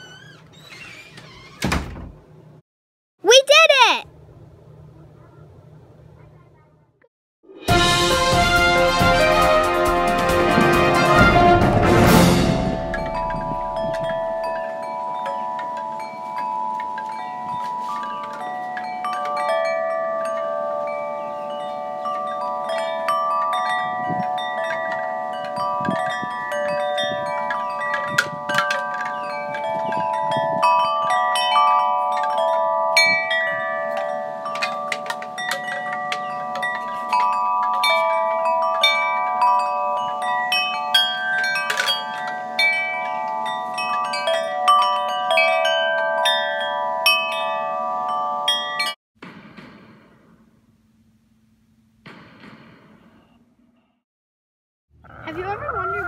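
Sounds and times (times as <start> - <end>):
wind chimes ringing: 12.7 - 49.0.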